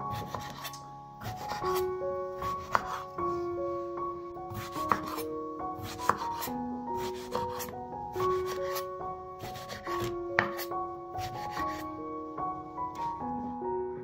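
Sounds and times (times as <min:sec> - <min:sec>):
background music: 0:00.0 - 0:14.0
knife slicing vegetable: 0:00.1 - 0:01.8, 0:02.4 - 0:03.1, 0:04.5 - 0:05.2, 0:05.8 - 0:11.8.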